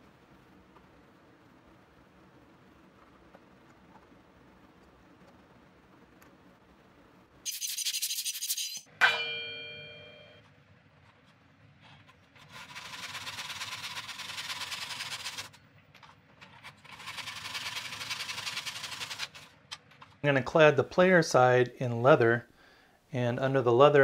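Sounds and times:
metallic clink ringing: 8.7 - 10.4.

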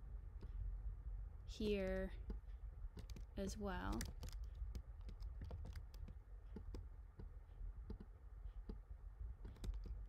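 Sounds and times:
low steady hum: 0.0 - 10.0
mouse and keyboard clicking: 3.0 - 3.3, 3.9 - 7.3, 9.4 - 10.0.

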